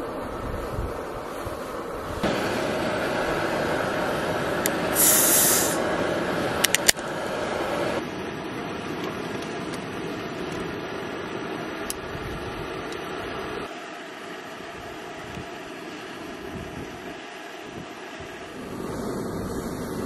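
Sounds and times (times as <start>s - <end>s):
hiss of escaping gas: 2.2s - 8.0s.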